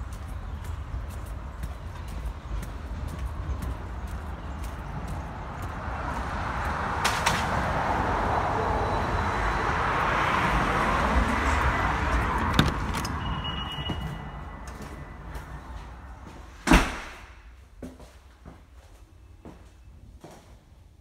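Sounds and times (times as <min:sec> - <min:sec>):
car passing: 0:00.0 - 0:17.4
door squeaking open: 0:12.3 - 0:14.7.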